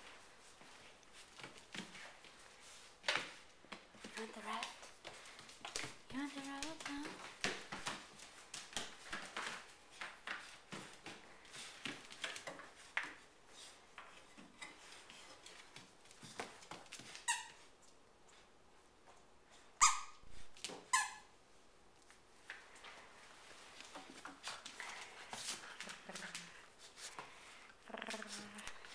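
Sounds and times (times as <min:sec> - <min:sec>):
squeaky toy squeaking: 0:19.8 - 0:20.2, 0:20.9 - 0:21.3
puppy chewing and scuffling: 0:21.9 - 0:28.9.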